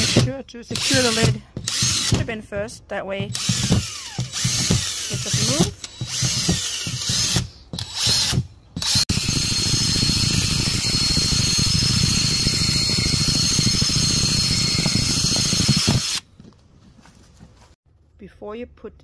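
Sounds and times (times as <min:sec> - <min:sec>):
cordless drill boring plastic: 0:00.0 - 0:02.2, 0:03.3 - 0:16.2.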